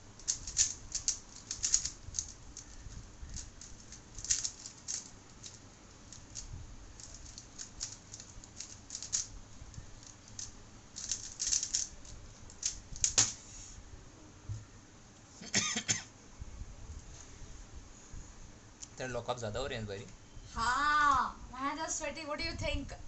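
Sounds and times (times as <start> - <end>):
puzzle cube clicking: 0.2 - 2.8, 3.4 - 9.3, 10.3 - 11.9, 12.5 - 13.4.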